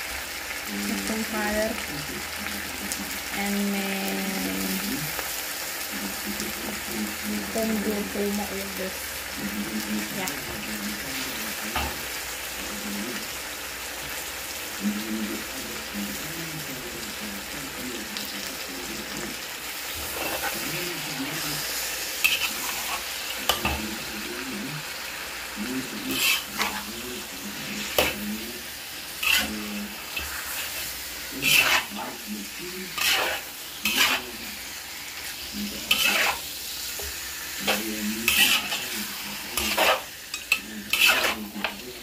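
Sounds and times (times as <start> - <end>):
chicken sizzling in a wok: 0.0 - 42.0
spatula scraping and knocking pan: 26.1 - 26.9, 27.8 - 28.3, 29.2 - 32.2, 33.0 - 34.2, 35.9 - 36.4, 37.0 - 39.0, 39.6 - 41.8.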